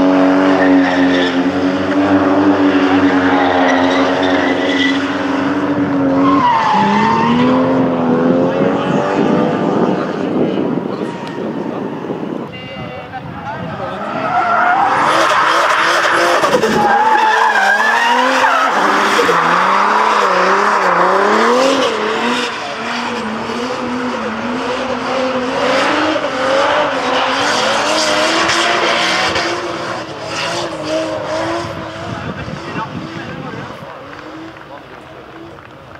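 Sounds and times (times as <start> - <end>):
car engine revving: 0.0 - 12.4, 13.8 - 35.7.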